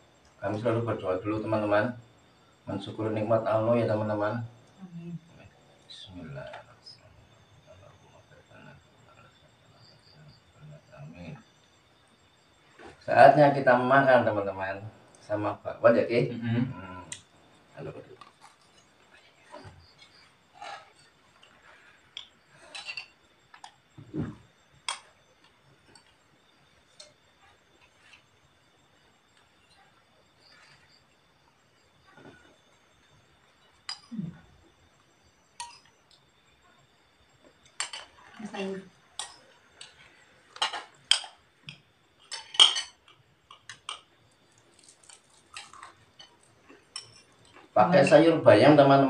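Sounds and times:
dull thump: 0:24.0 - 0:24.4
spoons and plates clinking: 0:42.3 - 0:44.0.

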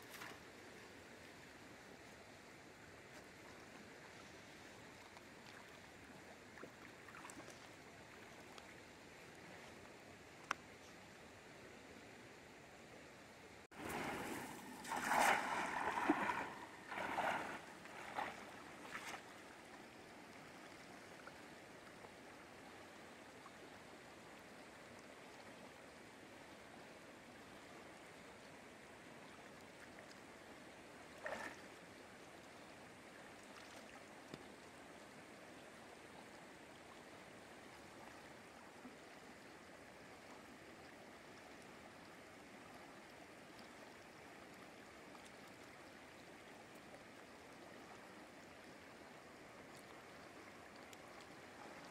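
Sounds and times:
river current running: 0:13.7 - 0:21.7
net splashing into water: 0:13.8 - 0:19.2.

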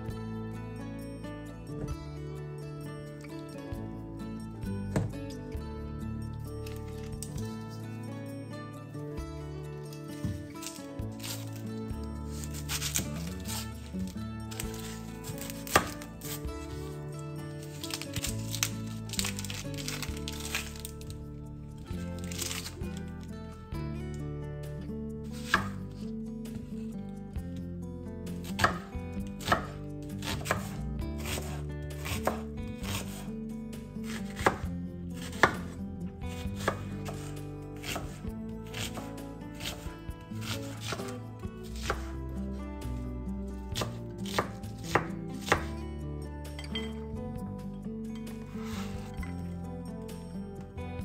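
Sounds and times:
knife chopping on wooden board: 0:04.9 - 0:05.2, 0:10.2 - 0:11.5, 0:12.3 - 0:13.7, 0:14.6 - 0:16.8, 0:25.4 - 0:25.8, 0:28.5 - 0:33.2, 0:34.0 - 0:35.8, 0:36.6 - 0:39.0, 0:39.6 - 0:41.1, 0:41.7 - 0:42.1, 0:43.8 - 0:45.7.

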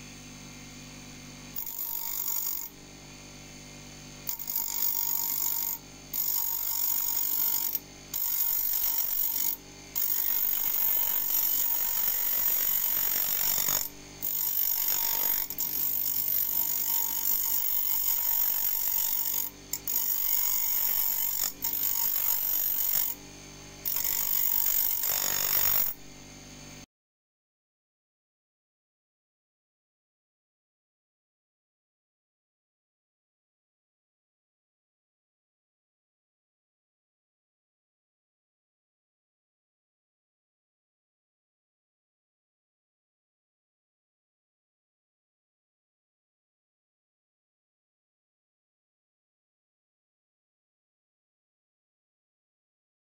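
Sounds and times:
grinder motor hum: 0:00.0 - 0:26.9
high-pitched grinding of steel: 0:01.5 - 0:02.9, 0:04.2 - 0:26.2.

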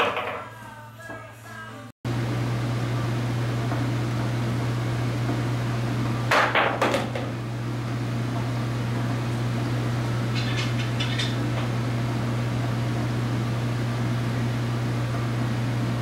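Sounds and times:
cue striking ball: 0:00.0 - 0:00.5, 0:06.3 - 0:07.3
pool balls clacking: 0:00.0 - 0:01.3, 0:06.3 - 0:07.4.

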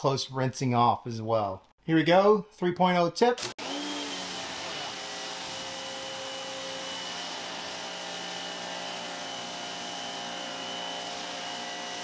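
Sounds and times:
pressure washer motor hum: 0:03.4 - 0:12.0.

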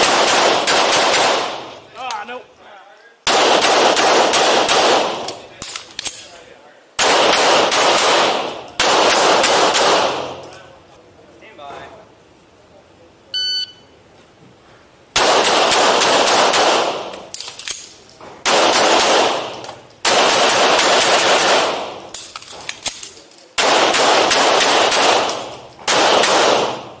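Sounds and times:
pistol shots reverberating indoors: 0:00.0 - 0:01.8, 0:03.2 - 0:06.4, 0:07.0 - 0:10.6, 0:15.1 - 0:27.0.

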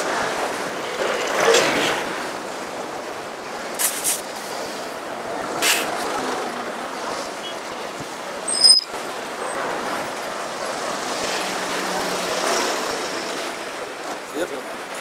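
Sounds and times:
road traffic hiss: 0:00.0 - 0:15.0
sharp high-pitched squeak: 0:08.5 - 0:08.9.

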